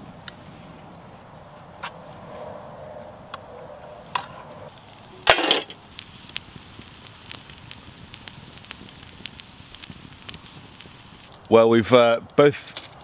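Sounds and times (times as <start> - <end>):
campfire crackling: 0.0 - 13.0
sharp fire pops: 3.3 - 12.4.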